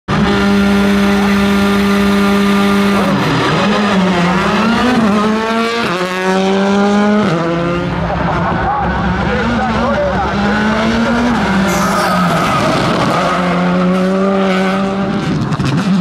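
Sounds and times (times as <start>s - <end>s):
rally car engine revving: 0.1s - 16.0s.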